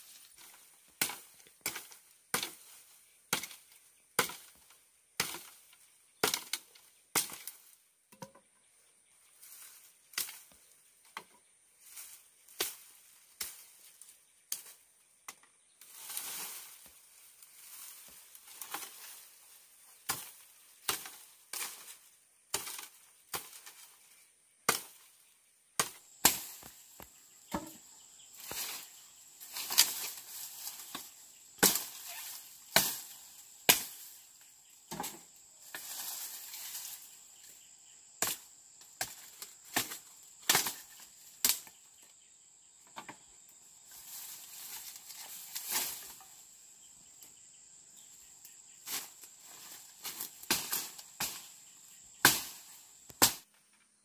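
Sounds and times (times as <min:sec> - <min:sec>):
machete chopping branches: 0:00.4 - 0:07.7, 0:10.1 - 0:10.5, 0:12.5 - 0:13.9, 0:17.7 - 0:19.3, 0:19.9 - 0:24.0, 0:24.6 - 0:25.1, 0:25.8 - 0:34.2, 0:34.9 - 0:41.8, 0:44.1 - 0:46.2, 0:48.8 - 0:53.6
brush rustling: 0:09.2 - 0:11.1, 0:11.7 - 0:14.8, 0:15.8 - 0:42.1, 0:43.6 - 0:47.4, 0:48.0 - 0:53.5.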